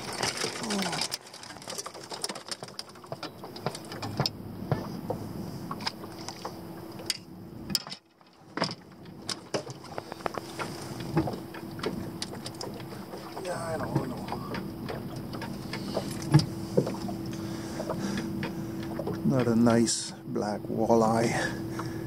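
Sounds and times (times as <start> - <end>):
faint steady hum: 0.0 - 22.0
sharp clicks and knocks: 5.8 - 19.8.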